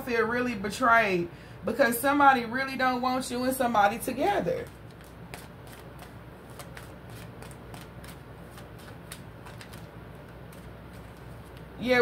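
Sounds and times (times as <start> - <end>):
cards shuffled by hand: 4.6 - 11.8.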